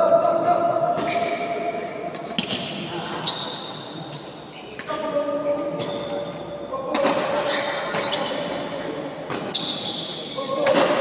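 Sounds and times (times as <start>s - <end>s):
rackets striking shuttlecock: 2.1s - 3.2s.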